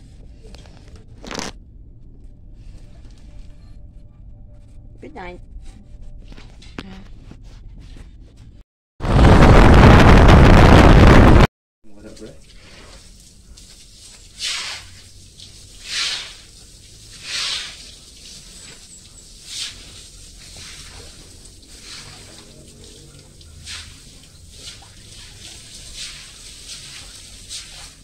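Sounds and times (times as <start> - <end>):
hose water splashing on concrete: 11.9 - 28.0.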